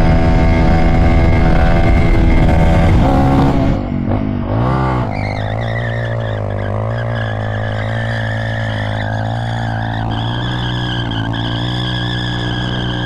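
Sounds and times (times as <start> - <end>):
motorcycle engine at high revs: 0.0 - 13.0
motorcycle engine revving: 0.0 - 13.0.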